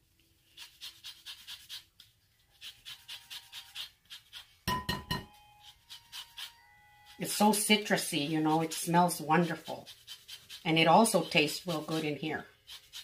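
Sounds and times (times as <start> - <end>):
lemon scraping on grater: 0.5 - 4.6, 5.6 - 13.0.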